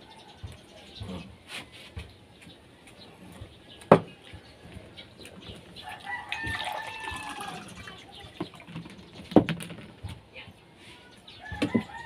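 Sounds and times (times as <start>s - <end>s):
rooster crowing: 5.8s - 7.8s, 11.4s - 12.0s.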